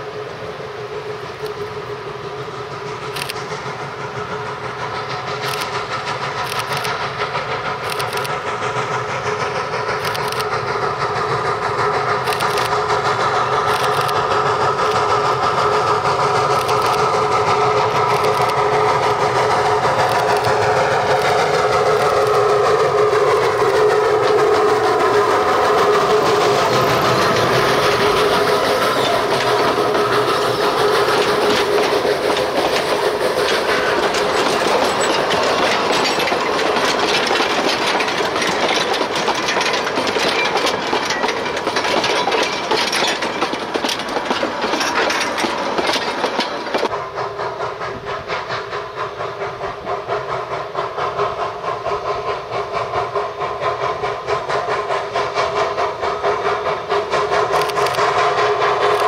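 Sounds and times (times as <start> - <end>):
train wheels clicking over rails: 0.0 - 59.0
steady tones over rattle: 1.0 - 47.0.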